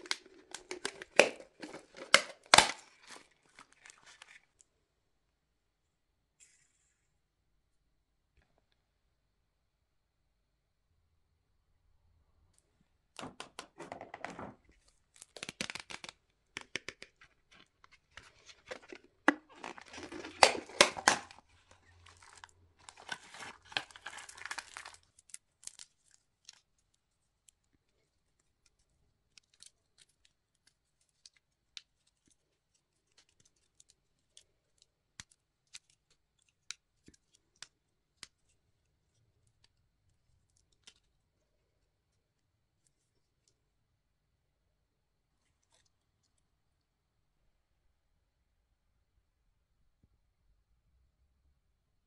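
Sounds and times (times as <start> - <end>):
plastic wrapping crinkling: 0.0 - 4.6, 17.2 - 41.2.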